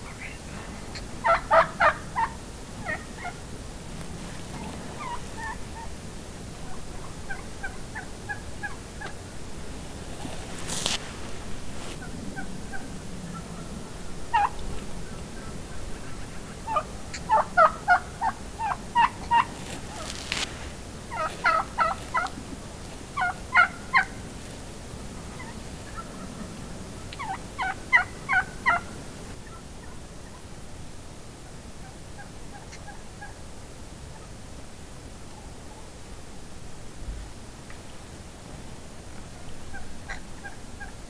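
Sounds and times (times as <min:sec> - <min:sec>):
wild turkeys calling: 0:00.0 - 0:09.3, 0:11.8 - 0:24.6, 0:25.2 - 0:30.4, 0:31.8 - 0:33.4, 0:39.2 - 0:41.0.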